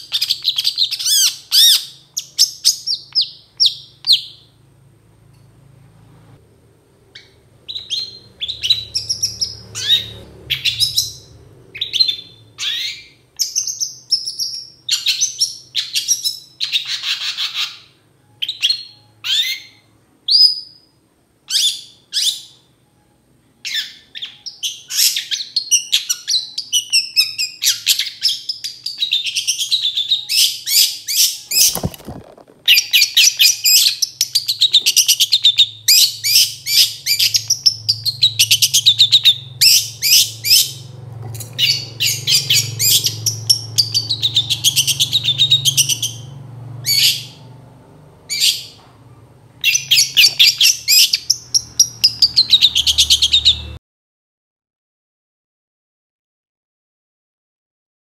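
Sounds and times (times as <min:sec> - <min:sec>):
bird singing sharp chirps: 0:07.2 - 0:17.8, 0:41.6 - 0:47.4.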